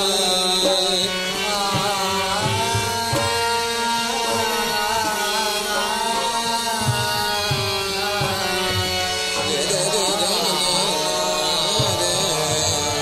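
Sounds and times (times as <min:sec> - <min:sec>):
harmonium-like drone: 0:00.0 - 0:13.0
voices holding sung note: 0:00.0 - 0:13.0.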